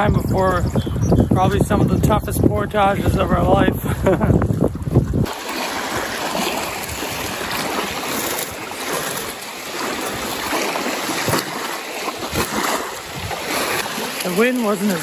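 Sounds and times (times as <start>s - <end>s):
lake waves washing onto sand: 1.4s - 15.0s
water splashing in shallows: 3.0s - 15.0s.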